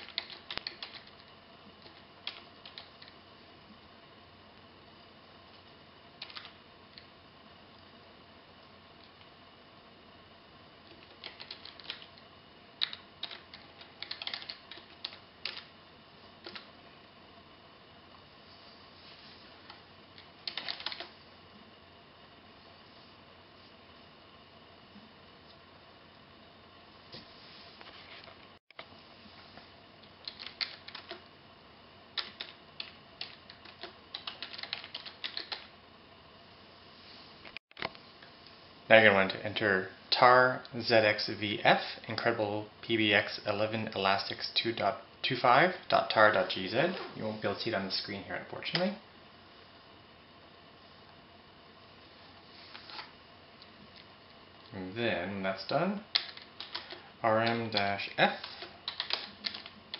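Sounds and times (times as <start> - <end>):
keyboard typing: 0.0 - 3.2, 6.2 - 7.1, 10.9 - 12.1, 12.8 - 15.7, 16.4 - 16.7, 20.2 - 21.1, 30.2 - 31.2, 32.2 - 35.7, 56.1 - 59.8
faint steady hum: 0.0 - 59.9
computer keyboard key clicks: 58.9 - 59.7.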